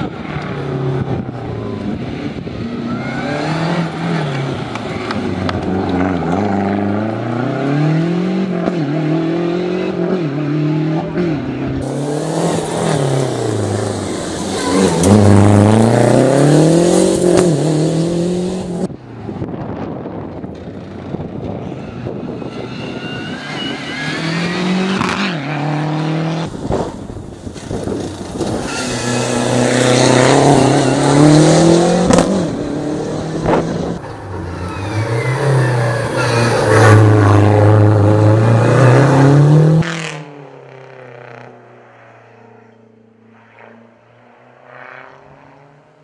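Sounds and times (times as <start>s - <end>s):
rally car engine revving hard: 3.2s - 18.9s, 24.0s - 26.9s, 28.3s - 34.0s, 34.8s - 40.3s.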